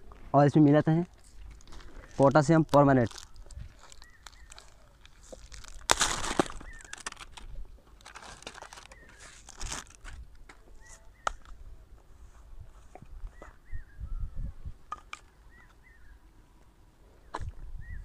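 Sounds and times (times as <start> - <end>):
short bird calls: 6.5 - 7.2.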